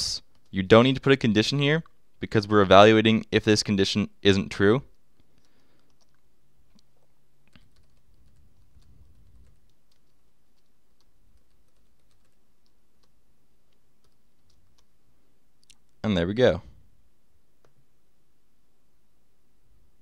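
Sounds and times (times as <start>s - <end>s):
low steady hum: 0.0s - 20.0s
keyboard typing: 0.2s - 1.0s, 4.9s - 15.0s.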